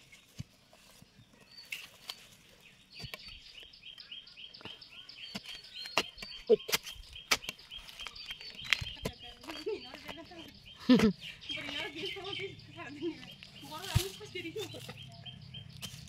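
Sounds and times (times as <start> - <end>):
bird chirping: 0.0 - 16.0
digging bar striking stony soil: 5.2 - 11.1, 13.6 - 16.0.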